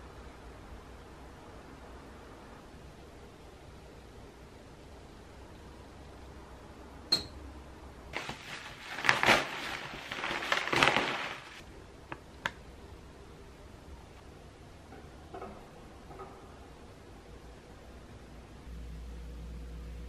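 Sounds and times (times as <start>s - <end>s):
bubble wrap bag crinkling: 8.2s - 11.7s.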